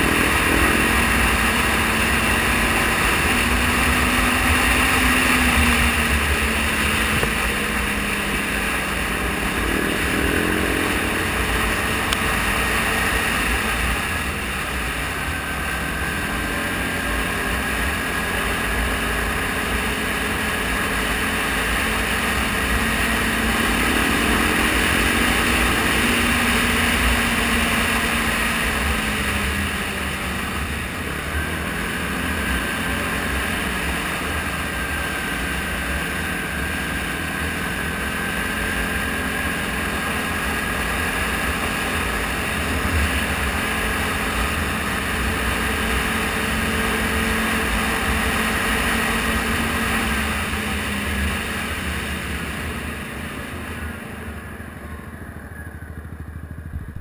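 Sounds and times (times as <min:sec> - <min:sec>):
atv engine running: 0:00.0 - 0:57.0
wind rumbling on microphone: 0:53.8 - 0:57.0.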